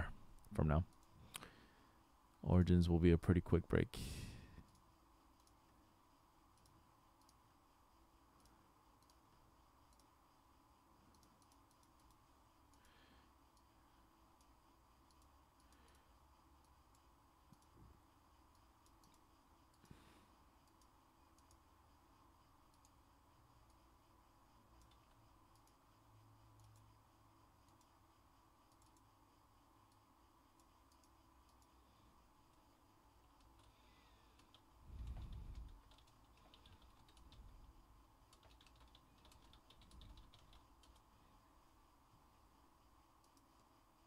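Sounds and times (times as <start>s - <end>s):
faint clicks: 9.8s - 10.2s, 11.1s - 13.7s, 14.4s - 16.0s, 18.5s - 20.0s, 20.6s - 21.6s, 24.8s - 25.8s, 27.6s - 28.0s, 28.7s - 29.1s, 29.9s - 31.8s, 33.2s - 37.7s, 43.2s - 43.8s.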